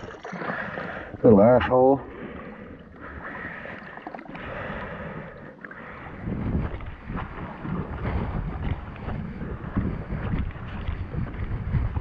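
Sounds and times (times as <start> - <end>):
water washing against rocks: 0.0 - 0.8
wind buffeting microphone: 5.8 - 12.0.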